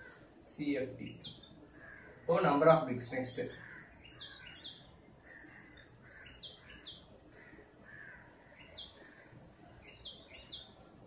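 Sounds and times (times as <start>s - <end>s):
small bird chirping: 1.0s - 2.0s, 3.6s - 7.1s, 8.5s - 11.0s.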